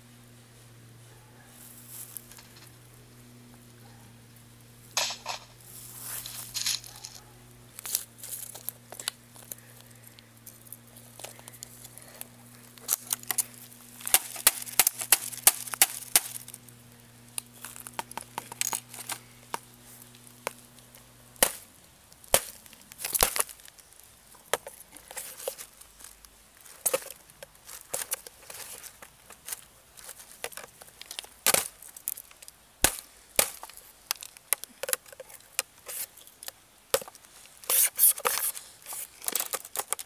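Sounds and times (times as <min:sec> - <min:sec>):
plastic cracking and snapping: 0:10.5 - 0:16.7, 0:17.3 - 0:37.3, 0:38.2 - 0:40.0.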